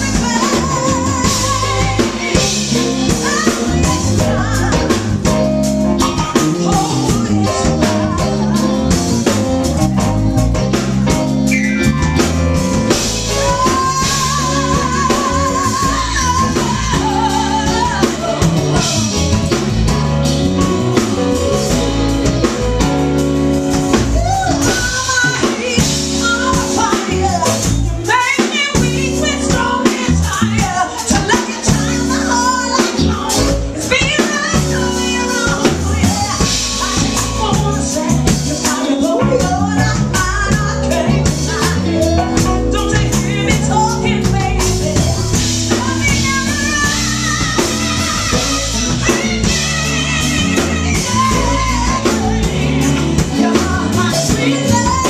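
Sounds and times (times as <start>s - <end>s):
woman singing with vibrato: 0.0s - 10.0s, 11.7s - 55.0s
drum kit: 0.0s - 55.0s
electric bass line: 0.0s - 55.0s.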